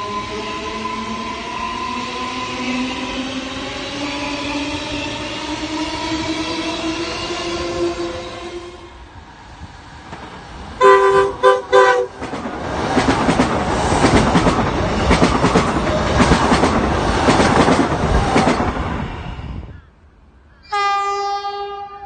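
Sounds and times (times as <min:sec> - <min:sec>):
train wheel and rail noise: 0:00.0 - 0:22.0
long train horn blast: 0:07.8 - 0:09.0, 0:10.8 - 0:12.2, 0:20.7 - 0:22.0
train horn toots: 0:10.8 - 0:12.2, 0:20.6 - 0:22.0.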